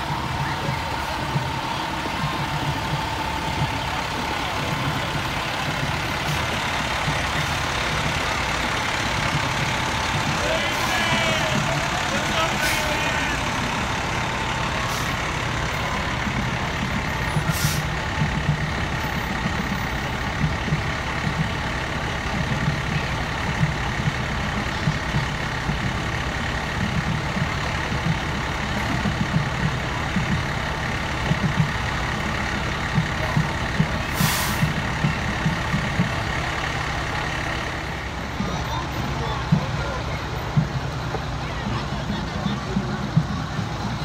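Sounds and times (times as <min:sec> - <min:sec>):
diesel engines rumbling: 0:00.0 - 0:44.0
air brake hisses: 0:12.6 - 0:13.0, 0:17.4 - 0:18.0, 0:34.1 - 0:34.8.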